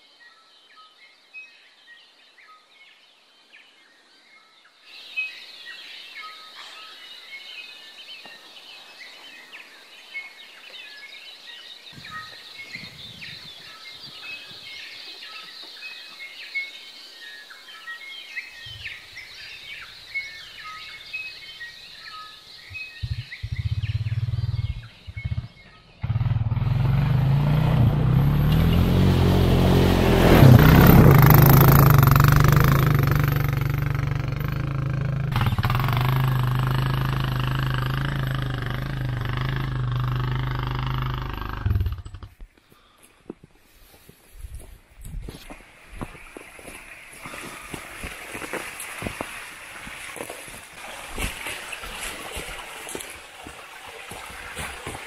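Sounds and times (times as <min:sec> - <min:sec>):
birds chirping: 0:00.0 - 0:48.6
quad bike engine: 0:23.0 - 0:42.4.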